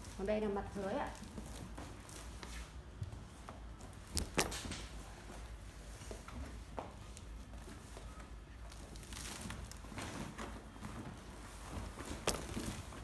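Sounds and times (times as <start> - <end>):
mat rustling: 0.0 - 13.0.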